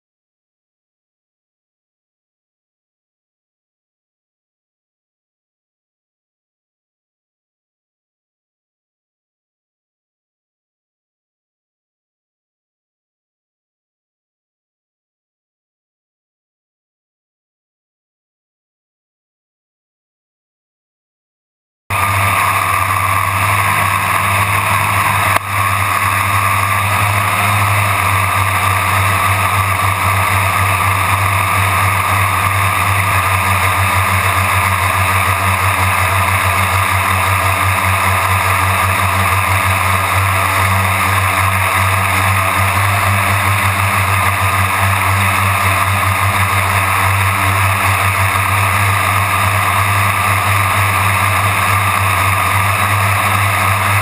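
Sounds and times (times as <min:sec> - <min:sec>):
drone propellers droning: 0:21.9 - 0:54.0.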